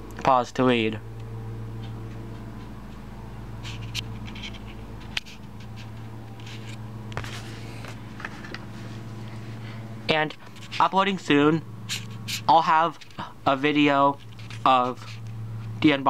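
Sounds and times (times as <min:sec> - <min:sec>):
low electrical hum: 0:00.0 - 0:16.0
handling clicks and rustles: 0:01.1 - 0:09.4.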